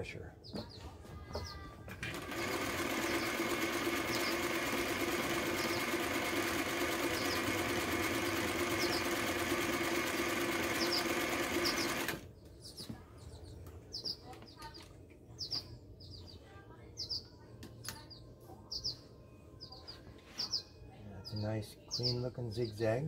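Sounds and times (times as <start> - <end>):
sewing machine running: 2.0 - 12.2.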